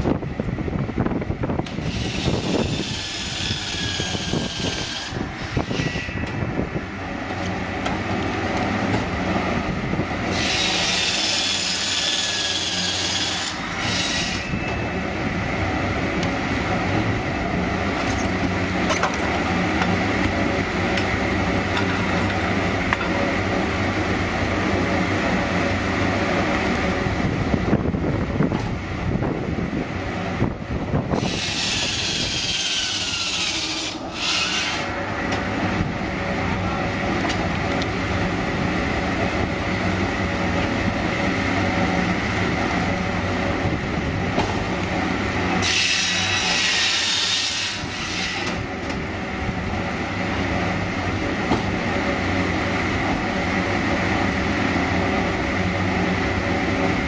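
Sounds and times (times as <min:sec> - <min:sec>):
saw motor humming: 0:01.7 - 0:06.2, 0:10.2 - 0:14.6, 0:31.2 - 0:35.0, 0:45.5 - 0:48.7
saw blade rasping through log: 0:01.8 - 0:06.2, 0:10.3 - 0:14.5, 0:31.2 - 0:35.0, 0:45.6 - 0:48.6.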